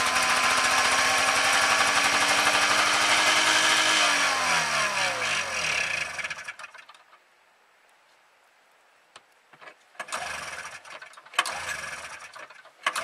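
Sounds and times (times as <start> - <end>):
snowmobile engine running: 0.0 - 6.6.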